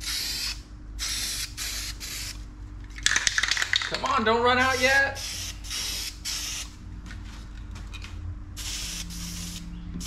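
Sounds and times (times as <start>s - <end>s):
aerosol spray can hissing: 0.0s - 2.4s, 4.8s - 6.7s, 8.6s - 9.6s.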